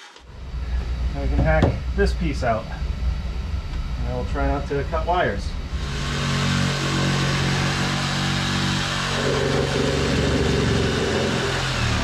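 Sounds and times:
reciprocating saw cutting wood: 5.7 - 12.0.

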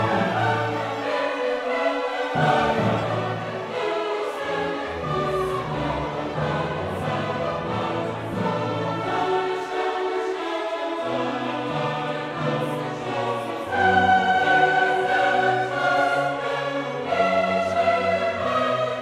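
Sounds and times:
choir singing held notes: 0.0 - 19.0
orchestra playing: 0.0 - 19.0.

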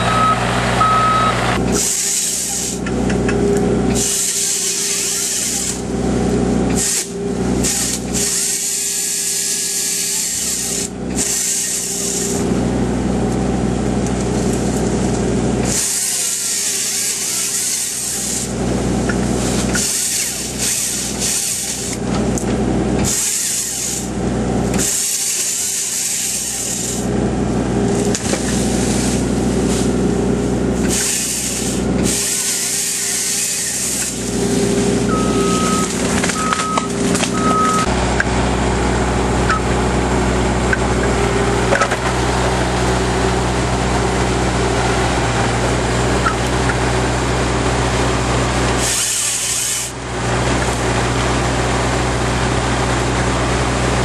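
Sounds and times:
excavator engine running: 0.0 - 54.0
chainsaw cutting wood: 1.6 - 2.9, 3.8 - 5.9, 6.6 - 12.5, 14.0 - 27.1, 27.8 - 38.3, 48.6 - 51.4.

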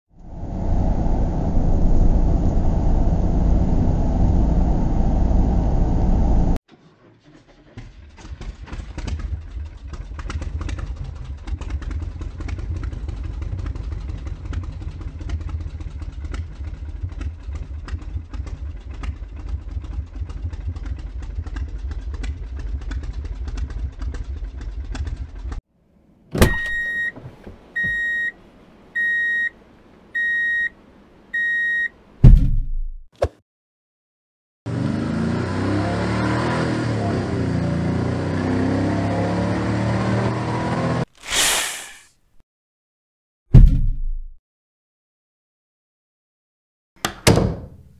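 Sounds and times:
electronic beeps: 30.2 - 30.7.

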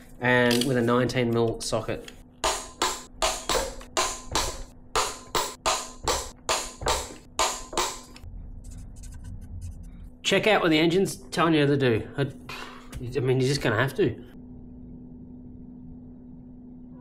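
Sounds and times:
music with percussive beat: 2.4 - 8.1.

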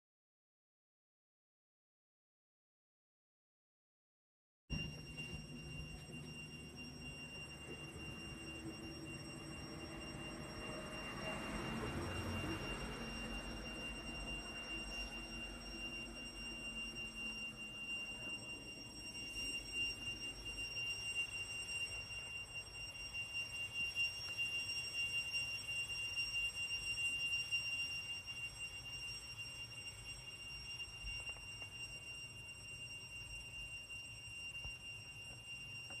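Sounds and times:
cicada singing: 4.9 - 32.1.

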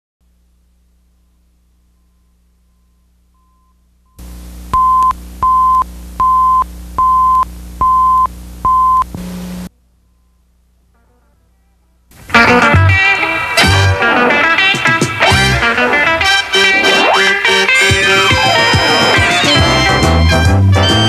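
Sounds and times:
low hum: 0.2 - 14.4
low buzz: 0.2 - 21.0
tape hiss: 0.2 - 21.0.

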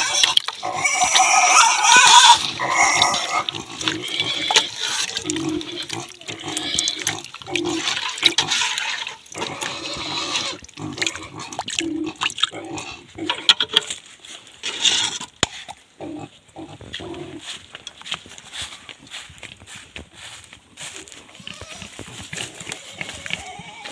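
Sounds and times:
pigs grunting: 0.0 - 13.7, 14.7 - 17.5, 21.4 - 23.9
feed squelching in metal basin: 0.0 - 14.0.

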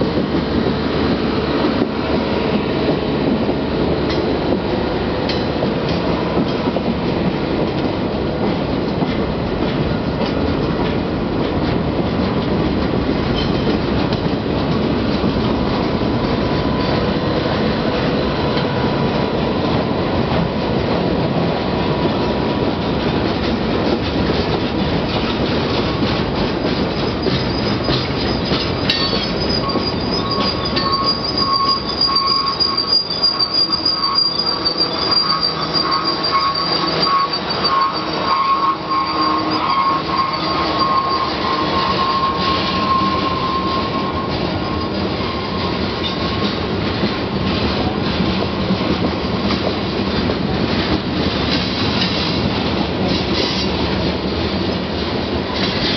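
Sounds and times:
freight train wheels clattering: 0.0 - 55.9
wheel squeal: 26.9 - 46.6.

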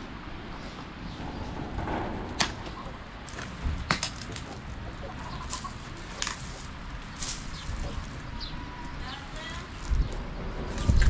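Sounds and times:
chickens clucking: 0.5 - 11.0
sharp cracks: 1.7 - 4.7.

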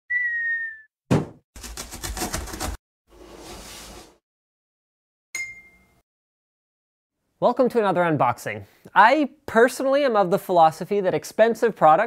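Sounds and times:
cardboard box thump: 1.1 - 2.8
short bright ding: 5.4 - 6.0.

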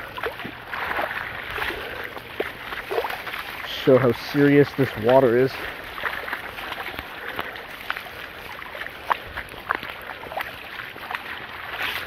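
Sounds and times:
flowing water rushing: 0.0 - 12.0
footsteps splashing through water: 0.0 - 12.0.

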